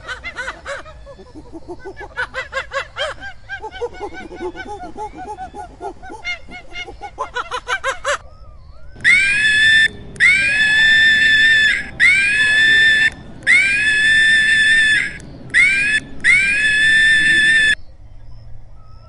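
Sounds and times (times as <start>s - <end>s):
monkey screaming: 9.0s - 17.8s.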